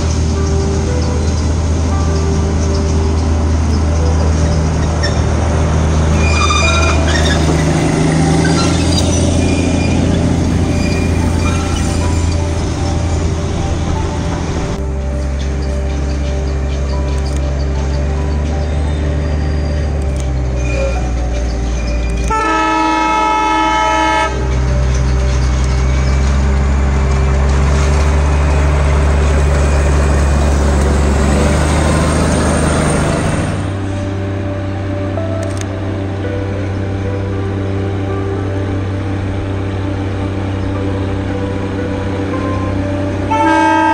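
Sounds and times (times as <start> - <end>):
diesel locomotive engine droning: 0.0 - 43.9
locomotive horn: 4.1 - 15.9, 18.5 - 43.9
train wheels squealing: 6.1 - 13.2, 15.2 - 22.3, 29.2 - 30.7.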